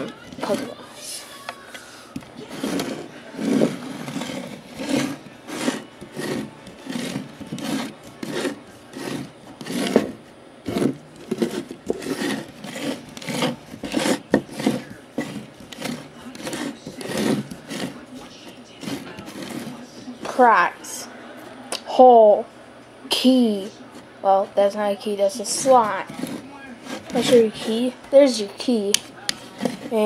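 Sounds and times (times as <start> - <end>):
plastic box scraping on wood: 0.0 - 0.8, 2.3 - 20.4, 25.4 - 30.0.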